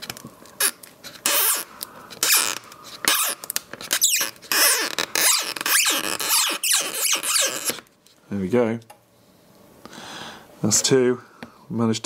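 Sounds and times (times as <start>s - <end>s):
adhesive strip squeaking: 0.0s - 7.9s.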